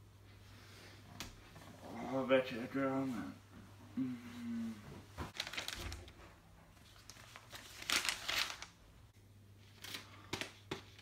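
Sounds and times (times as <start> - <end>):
newspaper pages rustling: 5.3 - 8.8.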